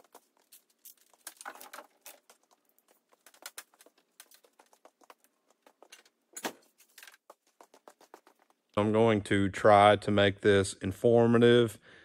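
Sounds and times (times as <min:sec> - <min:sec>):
small hard objects clicking: 0:00.0 - 0:08.6.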